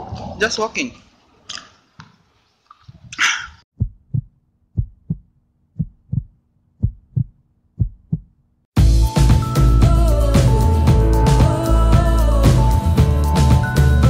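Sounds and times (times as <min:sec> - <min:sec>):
heartbeat thumps: 0:03.7 - 0:08.3.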